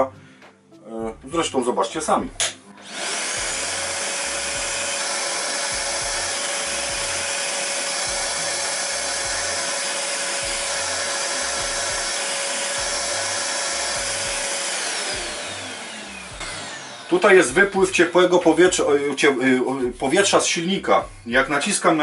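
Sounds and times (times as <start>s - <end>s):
workshop vacuum whining: 2.3s - 21.6s
vacuum motor spinning down: 2.8s - 18.8s.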